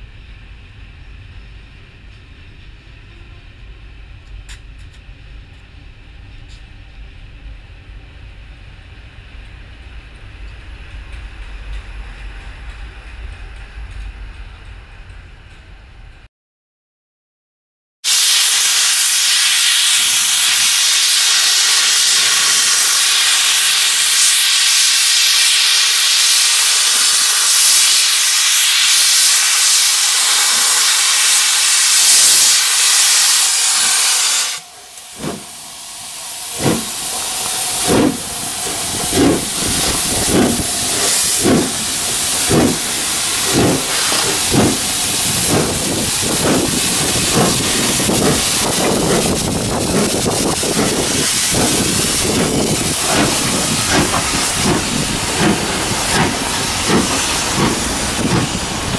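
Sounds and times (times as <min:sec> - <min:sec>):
steam hissing: 0:18.1 - 0:58.9
steam locomotive chuffing: 0:18.1 - 0:58.9.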